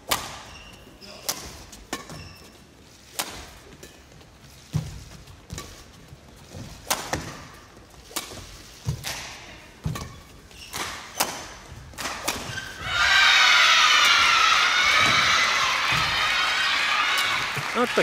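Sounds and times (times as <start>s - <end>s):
racket striking shuttlecock: 6.8s - 12.8s
crowd cheering and applauding: 12.9s - 18.0s.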